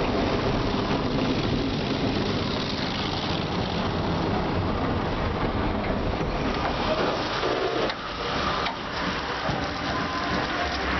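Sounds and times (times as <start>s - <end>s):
car wash brushes scrubbing car: 6.4s - 10.9s.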